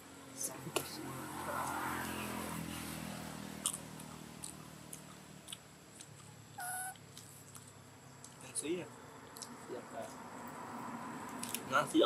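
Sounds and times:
monkey chewing clicks: 3.6 - 8.4
high-pitched monkey call: 6.6 - 7.0.

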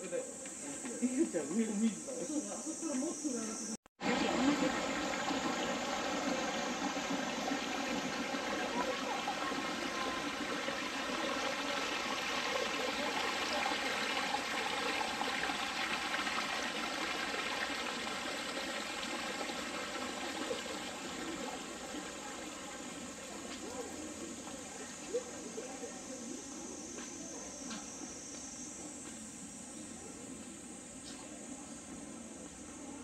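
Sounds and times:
running water: 4.0 - 26.7.

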